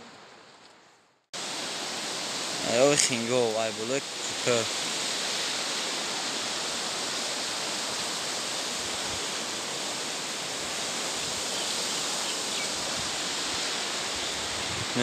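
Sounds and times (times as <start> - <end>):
river water rushing: 1.4 - 15.0.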